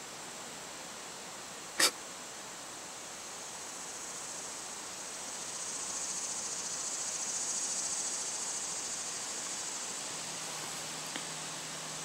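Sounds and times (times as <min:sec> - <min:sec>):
insects trilling: 0:02.8 - 0:12.0.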